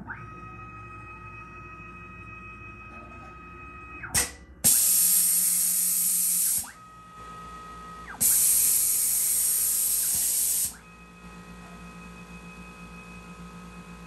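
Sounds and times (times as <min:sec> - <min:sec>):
motor whine: 0:00.0 - 0:14.0
air puff: 0:04.2 - 0:06.7, 0:08.2 - 0:10.8
air hissing from spindle: 0:04.7 - 0:06.7, 0:08.2 - 0:10.8.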